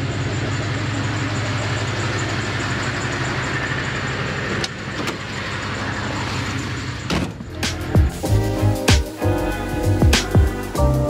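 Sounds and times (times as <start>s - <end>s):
truck engine idling: 0.0s - 11.0s
car door opening and shutting: 4.6s - 5.4s, 7.0s - 8.2s.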